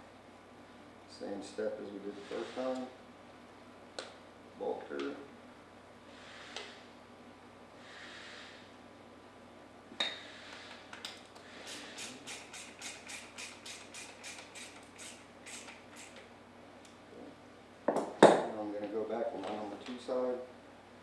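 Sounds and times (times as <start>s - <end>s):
ratchet wrench clicking: 11.7s - 16.2s.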